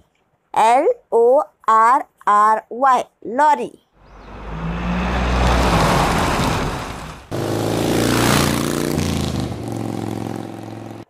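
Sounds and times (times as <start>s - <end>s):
truck engine driving past: 4.0s - 11.0s.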